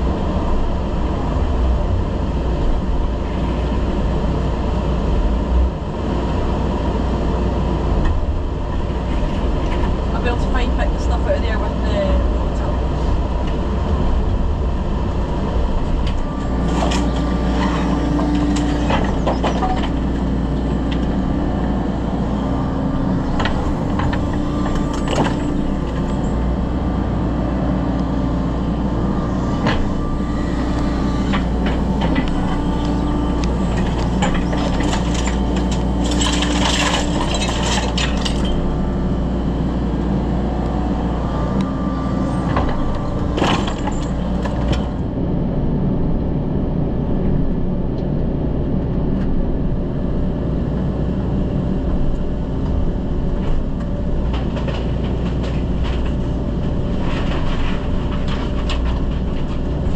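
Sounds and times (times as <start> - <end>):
excavator engine running: 0.0 - 59.9
hydraulic whine: 0.0 - 59.9
rubble cracking and clattering: 31.3 - 38.7, 53.4 - 59.9.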